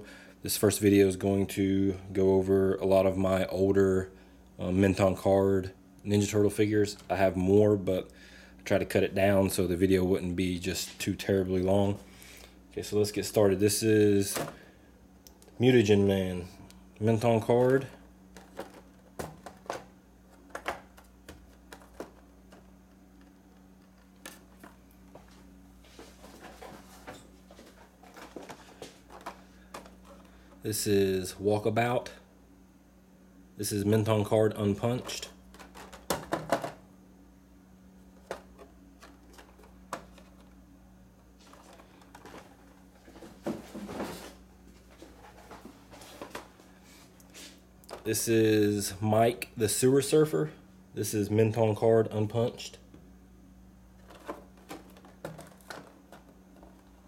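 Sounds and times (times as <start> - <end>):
steady low hum: 0.0 - 57.0
cardboard and plastic packaging crinkling: 17.2 - 30.3, 41.4 - 46.6, 54.0 - 57.0.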